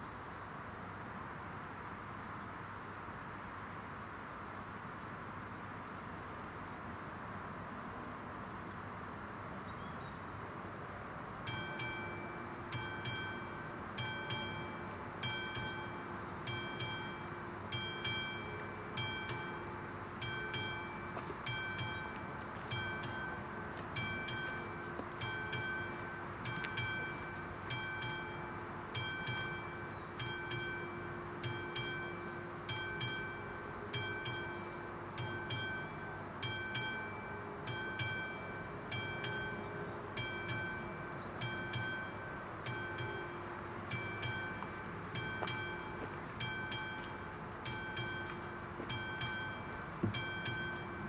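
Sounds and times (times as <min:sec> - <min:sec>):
level crossing bell ringing: 0:11.5 - 0:51.0.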